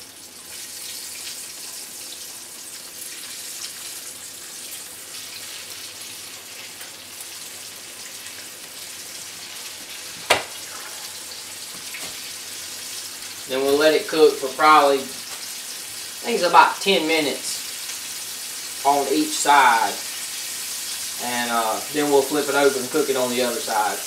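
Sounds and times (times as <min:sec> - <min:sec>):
meat frying in grease: 0:00.0 - 0:24.0
sharp knock: 0:10.3 - 0:10.5.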